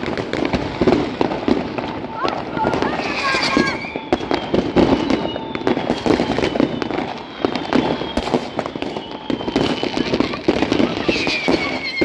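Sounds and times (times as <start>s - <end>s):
faint descending firework whistle: 0.0s - 12.0s
fireworks bangs and crackles: 0.0s - 12.0s.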